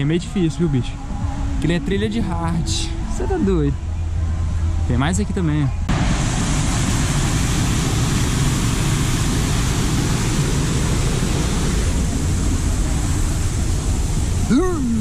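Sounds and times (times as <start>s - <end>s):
waterfall rushing: 5.9s - 15.0s.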